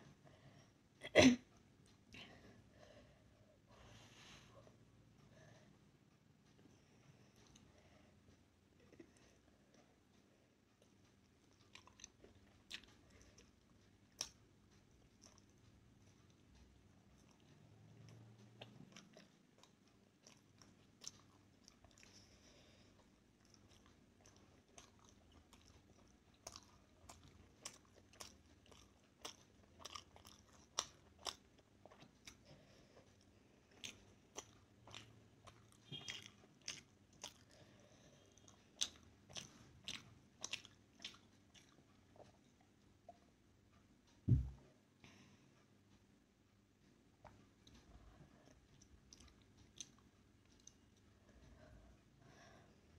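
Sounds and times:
person chewing with wet smacks: 10.8s - 43.4s, 47.2s - 51.8s.

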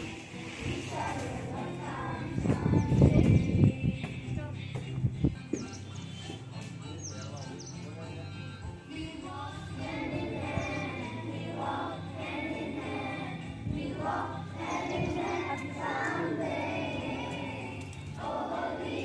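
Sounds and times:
group singing a prayer song: 0.0s - 3.7s, 9.3s - 19.0s.

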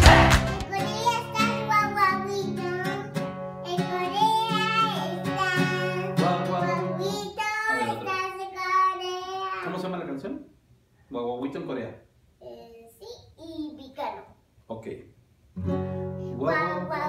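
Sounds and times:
acoustic guitar strumming: 0.0s - 7.3s, 15.6s - 17.0s
girl singing: 0.0s - 9.6s, 16.3s - 17.0s.

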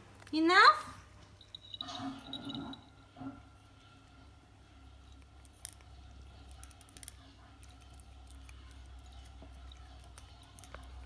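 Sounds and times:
low steady hum: 0.0s - 11.0s
cat licking a plastic spoon: 4.7s - 11.0s.

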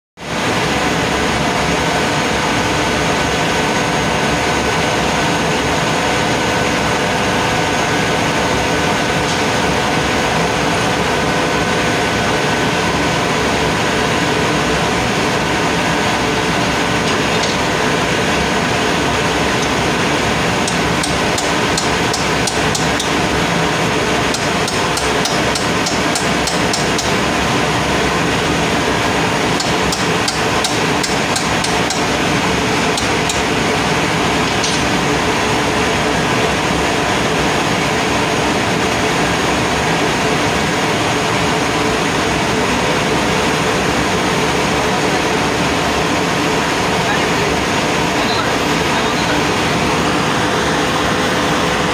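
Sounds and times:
machinery drone: 0.3s - 38.2s, 43.8s - 51.9s
spanner clicking on metal fittings: 20.6s - 23.2s, 24.3s - 27.2s, 29.6s - 32.1s, 32.9s - 33.4s.

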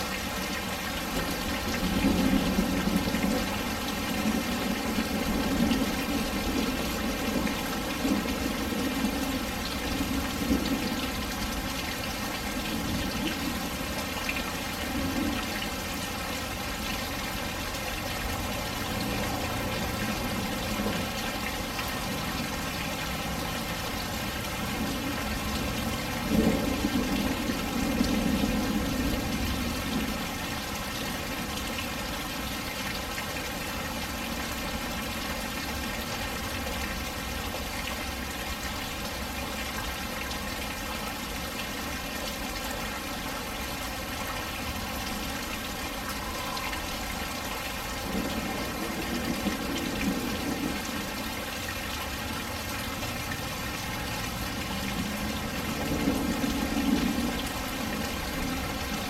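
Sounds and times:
heavy rain falling: 0.0s - 59.0s
water pouring and splashing: 0.0s - 59.0s.

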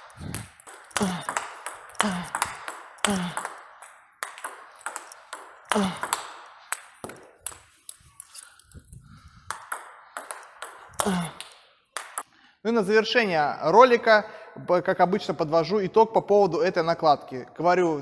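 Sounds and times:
table tennis ball hits: 0.1s - 7.8s, 9.5s - 12.3s
ball bouncing on table: 0.2s - 7.6s, 9.5s - 12.2s.

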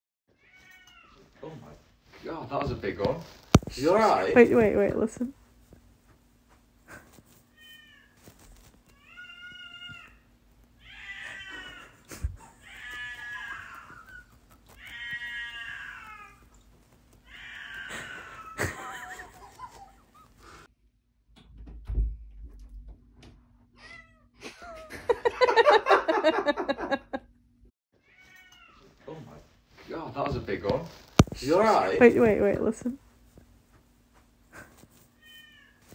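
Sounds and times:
cat meowing: 8.9s - 10.2s, 10.8s - 16.5s, 17.2s - 18.6s
door opening thump: 21.4s - 23.4s.

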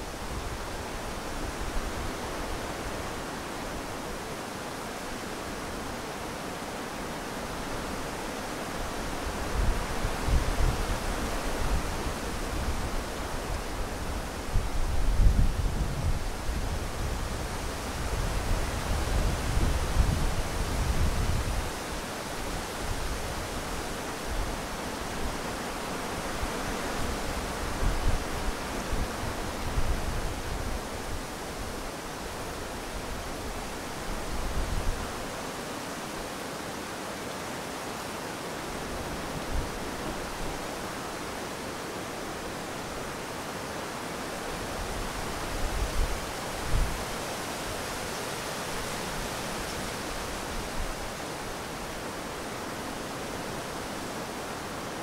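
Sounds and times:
wind rustling tree leaves: 0.0s - 55.0s
wind gusts thumping microphone: 8.8s - 35.4s.

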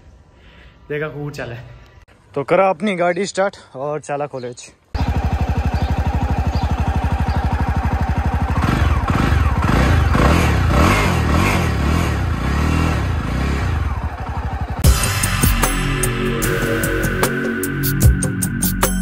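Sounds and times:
motorcycle engine idling and revving: 5.0s - 15.9s.

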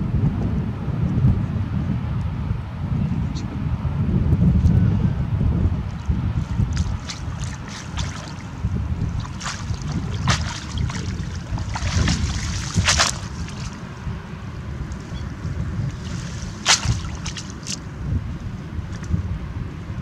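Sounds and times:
wind rumbling on microphone: 0.0s - 20.0s
water splashes and drips: 5.9s - 13.8s, 15.8s - 17.8s.

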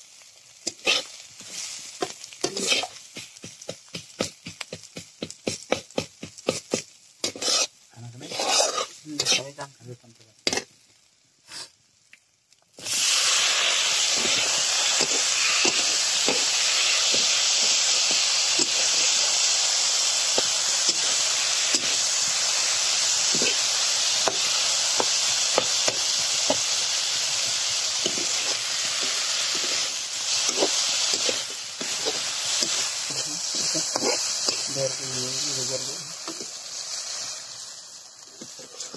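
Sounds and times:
tomatoes sizzling in oil: 0.0s - 38.9s
metal spatula scraping pan: 0.7s - 1.2s, 2.5s - 3.0s, 7.2s - 9.5s, 28.0s - 34.7s.

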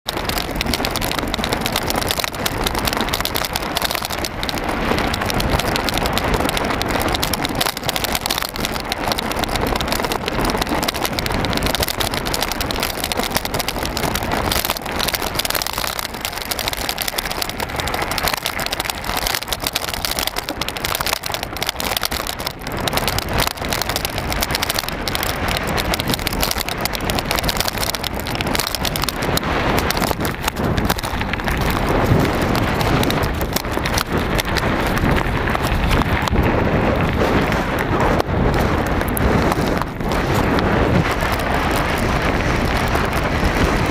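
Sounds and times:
bike tyres rattling on gravel: 0.0s - 43.9s.

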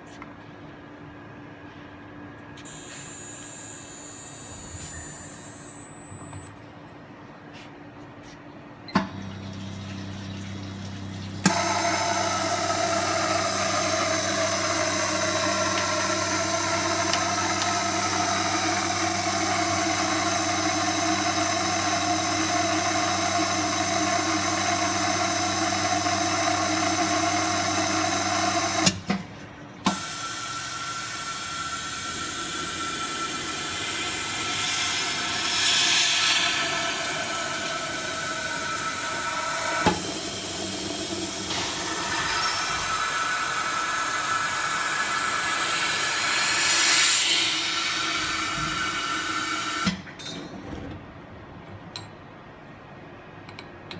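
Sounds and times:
machine hiss with hum and whine: 2.6s - 6.6s, 29.8s - 49.9s.

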